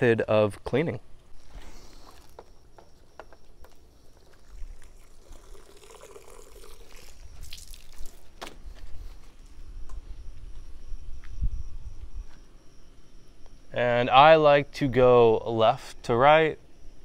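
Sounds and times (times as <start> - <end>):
water trickling and splashing: 4.0 - 8.4.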